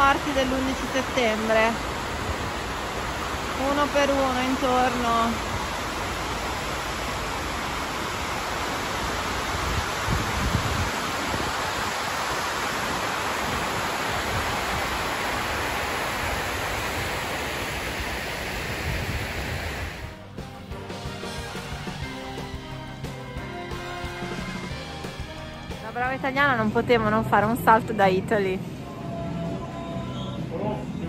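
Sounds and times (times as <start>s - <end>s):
waterfall rushing: 0.0s - 20.2s.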